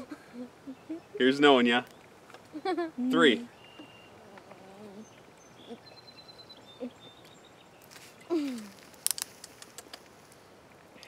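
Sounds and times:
sharp clicks: 8.9 - 10.2.

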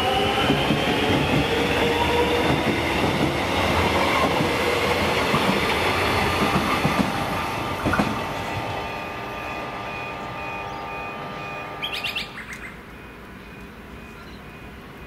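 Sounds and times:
electric train running with whine: 0.0 - 15.0
bird chirping: 11.8 - 14.5.

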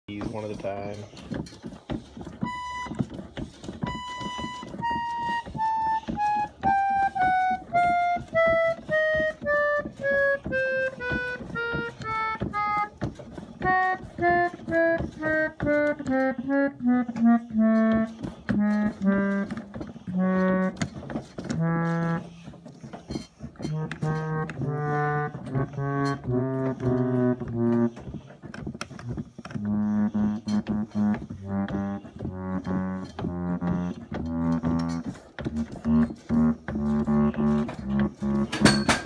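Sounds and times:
reed organ notes descending: 13.6 - 22.8, 23.6 - 28.1, 29.0 - 38.6.

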